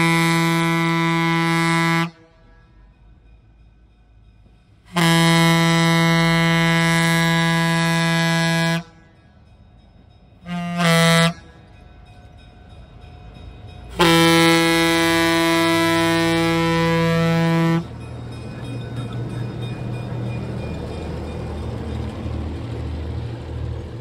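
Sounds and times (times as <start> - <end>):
locomotive air horn blasts: 0.0 - 2.6, 4.9 - 9.0, 10.4 - 11.5, 14.0 - 17.9
locomotive rumble: 0.0 - 24.0.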